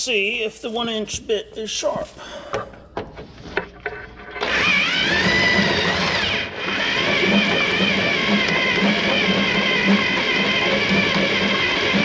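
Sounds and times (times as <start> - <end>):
drill whining into steel: 4.4 - 12.0.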